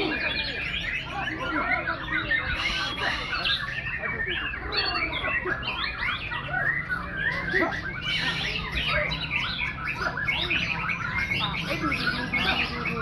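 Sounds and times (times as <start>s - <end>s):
chorus of birds singing: 0.0s - 13.0s.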